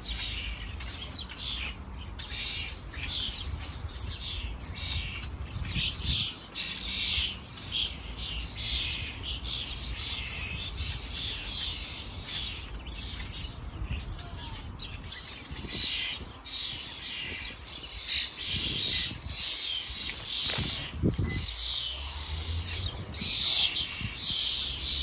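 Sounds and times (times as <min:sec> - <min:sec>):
starlings chattering: 0:00.0 - 0:25.0.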